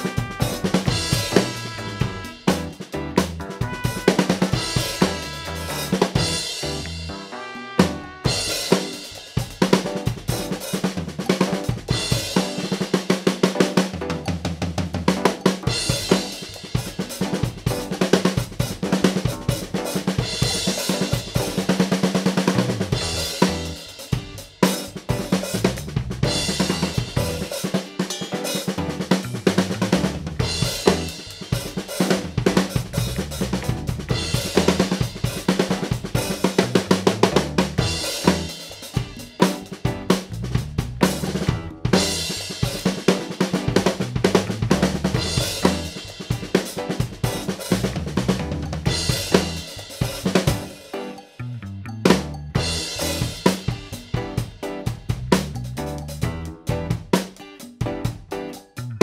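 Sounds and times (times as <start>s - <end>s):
backing track bass line: 0.0s - 9.1s, 22.4s - 27.6s, 28.7s - 42.6s, 43.6s - 46.1s, 47.2s - 50.8s, 51.4s - 57.1s
drum kit playing a groove: 0.0s - 59.0s.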